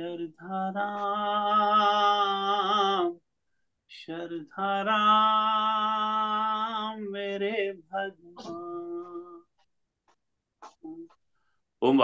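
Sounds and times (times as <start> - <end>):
man singing devotional song: 0.0 - 3.2, 3.9 - 9.5.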